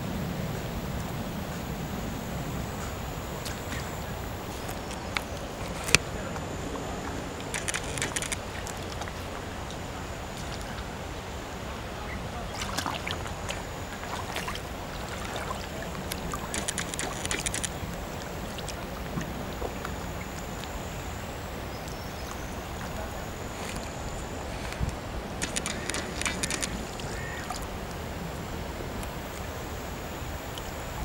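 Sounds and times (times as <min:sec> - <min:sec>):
steady water rush: 0:00.0 - 0:31.0
sneakers splashing through water: 0:12.4 - 0:20.8.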